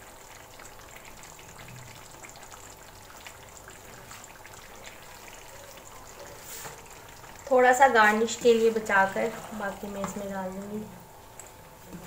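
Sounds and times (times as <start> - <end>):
food sizzling in a wok: 6.2 - 10.9.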